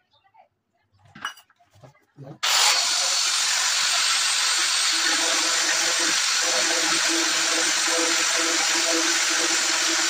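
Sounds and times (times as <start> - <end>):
core drill grinding into stone: 2.4 - 10.0.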